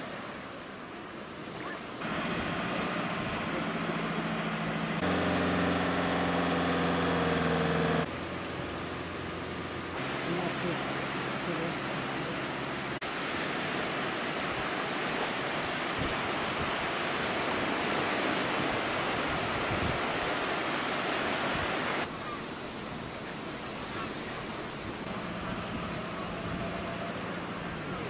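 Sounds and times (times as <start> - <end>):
sea surf breaking: 0.0 - 28.0
low engine hum: 2.0 - 13.0, 25.0 - 28.0.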